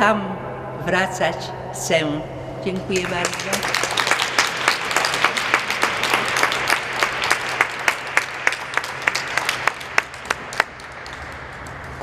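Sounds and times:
audience applauding: 3.0s - 12.0s.

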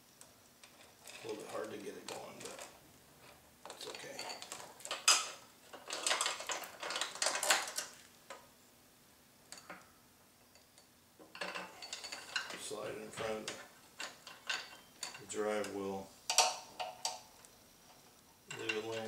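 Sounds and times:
metal chain clinking and rattling: 0.7s - 8.0s, 11.3s - 15.7s.

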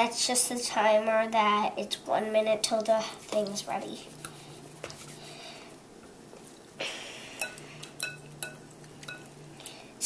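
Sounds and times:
whisk stirring thick mixture: 2.7s - 5.8s
whisk clinking against bowl: 7.4s - 9.4s.

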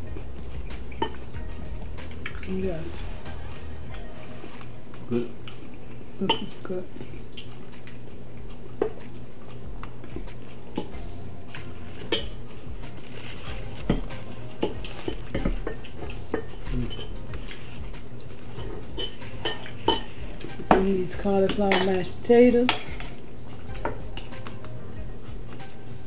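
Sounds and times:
low hum: 0.0s - 26.0s
forks clinking on plates: 13.9s - 17.8s, 18.6s - 24.6s.

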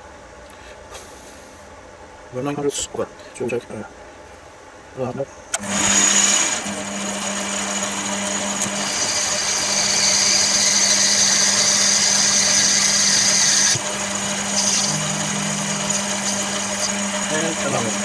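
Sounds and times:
lathe motor hum: 5.6s - 18.0s.

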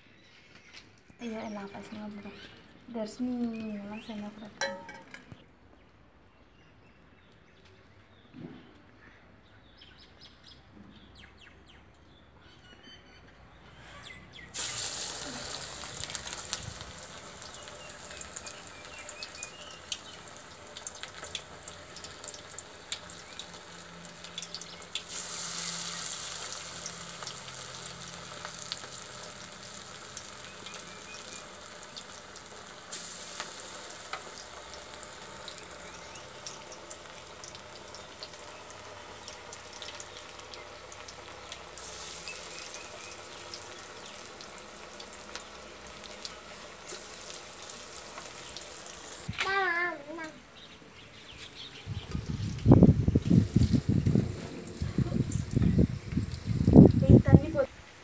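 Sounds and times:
oil crackling and bubbling: 14.4s - 58.0s
food sizzling in hot oil: 14.5s - 50.3s, 51.8s - 58.0s.

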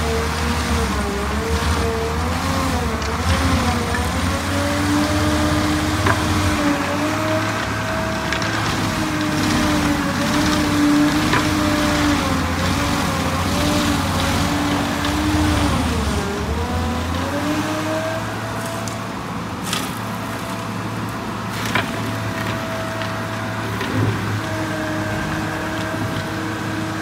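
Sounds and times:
excavator rumble: 0.0s - 27.0s
stump grinder whining: 0.0s - 27.0s.

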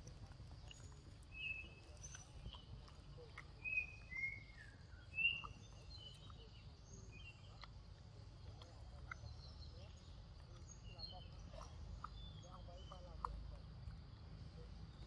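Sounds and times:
bird chirps and calls: 0.6s - 7.7s.

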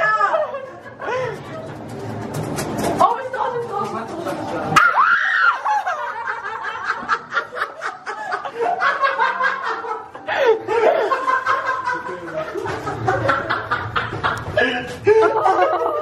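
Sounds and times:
group of people laughing: 0.0s - 1.9s, 5.2s - 16.0s.

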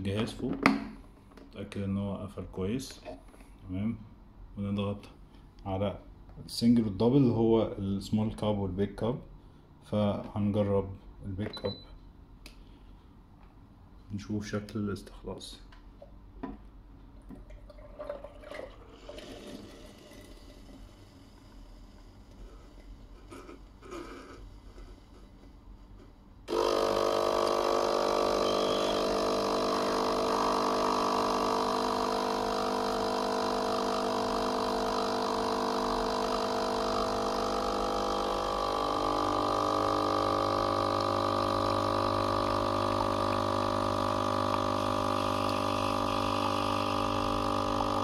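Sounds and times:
espresso machine pump humming: 26.5s - 48.0s.

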